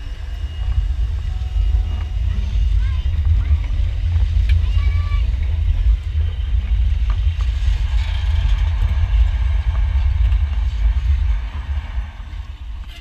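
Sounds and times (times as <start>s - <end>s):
steam locomotive rolling past: 0.0s - 13.0s.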